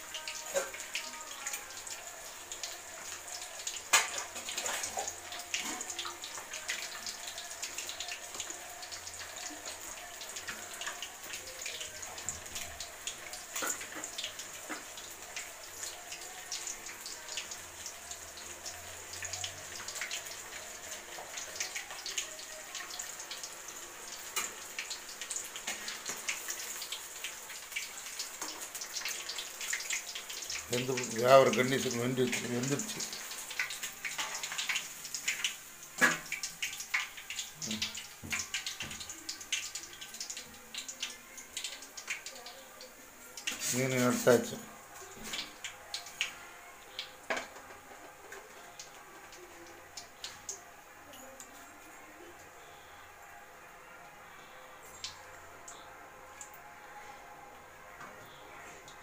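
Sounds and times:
oil popping and crackling: 0.0 - 50.6
fish deep-frying in oil: 0.0 - 53.5.

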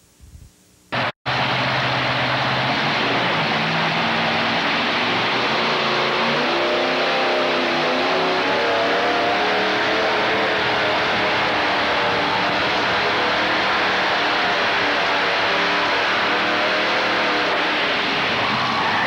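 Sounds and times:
tractor engine at full throttle: 1.0 - 18.6.

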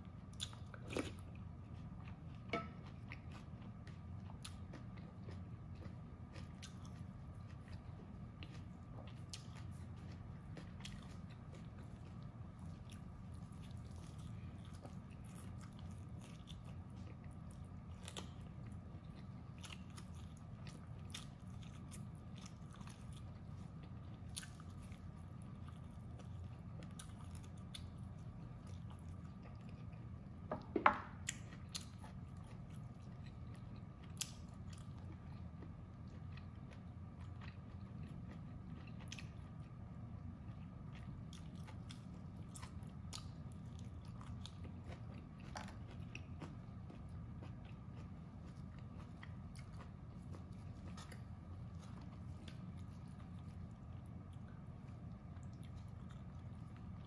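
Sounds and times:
chewing and biting food: 0.0 - 57.0.

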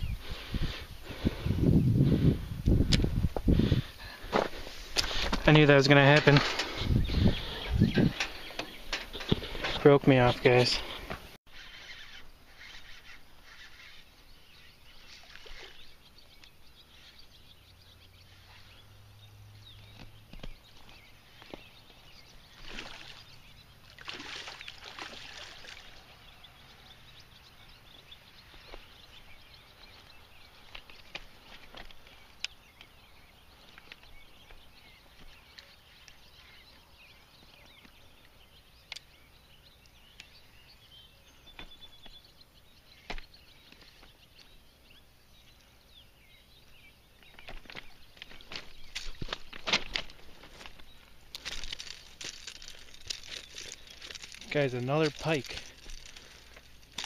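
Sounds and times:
fish splashing in water: 22.6 - 26.0.

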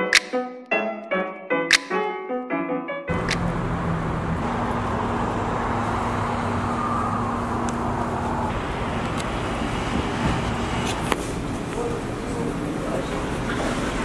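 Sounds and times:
road traffic noise: 3.1 - 14.0.

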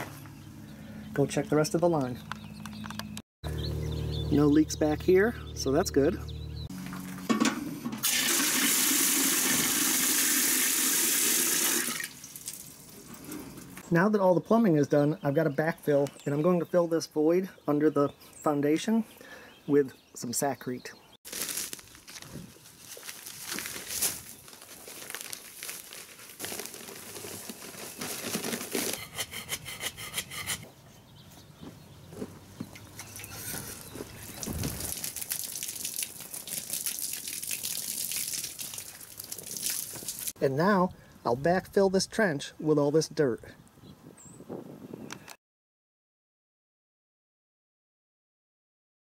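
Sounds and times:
water gushing into metal can: 8.0 - 12.8, 34.5 - 40.3
dry mix pouring onto soil: 21.3 - 29.0, 34.2 - 40.4
paper bag rustling: 21.3 - 29.2.

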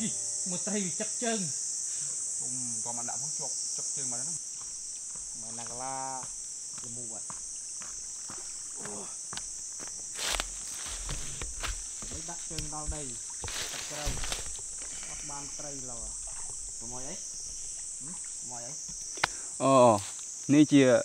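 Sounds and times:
insects chorus: 0.0 - 21.0
footsteps: 4.4 - 19.4
rustling knocks: 9.4 - 19.4.

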